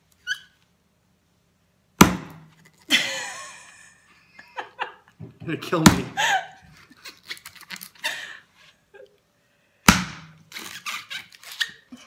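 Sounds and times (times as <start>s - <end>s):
cleaver whacking coconut: 2.0s - 2.5s, 5.8s - 6.2s, 9.9s - 10.4s.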